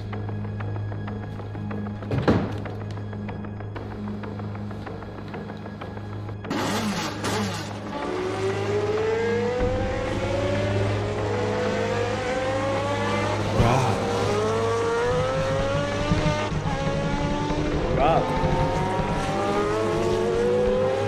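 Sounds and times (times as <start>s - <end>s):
race car engine accelerating: 6.4s - 21.0s.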